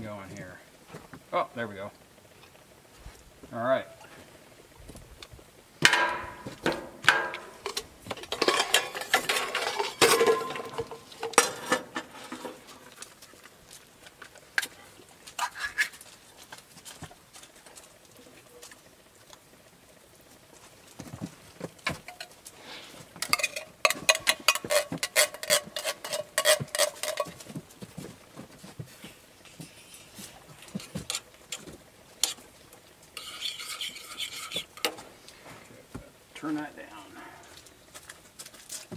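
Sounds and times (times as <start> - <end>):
saucepan clattering on grate: 5.8 - 12.6, 23.2 - 27.5
spoon scraping: 23.2 - 27.4, 33.1 - 34.9.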